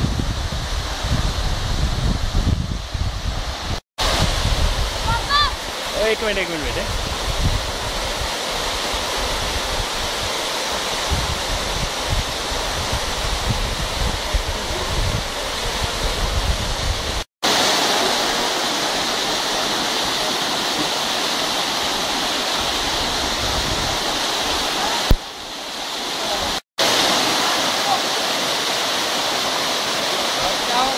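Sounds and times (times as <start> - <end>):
low wind buffeting: 0.0 - 6.0, 6.6 - 17.2, 21.6 - 24.8
waterfall rushing: 0.0 - 30.9.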